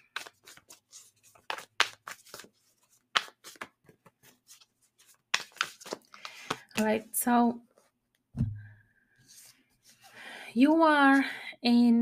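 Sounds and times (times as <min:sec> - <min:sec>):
cards shuffling: 0:00.0 - 0:07.0.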